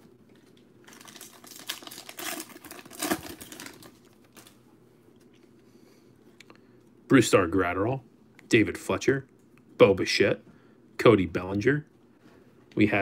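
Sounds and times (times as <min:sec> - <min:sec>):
foil wrapper crinkling: 0:00.3 - 0:04.6.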